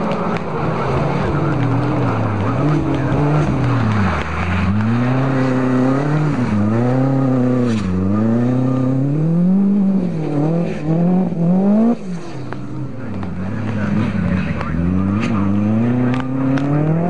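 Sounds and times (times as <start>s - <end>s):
rally car engine revving hard: 0.0s - 17.0s.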